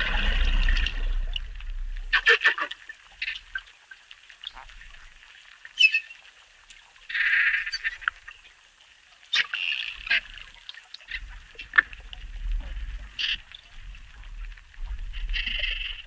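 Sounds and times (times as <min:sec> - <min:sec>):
low rumble: 0:00.0 - 0:02.3
dolphin chirps: 0:05.8 - 0:06.2
dolphins buzzing and clicking: 0:09.3 - 0:16.0.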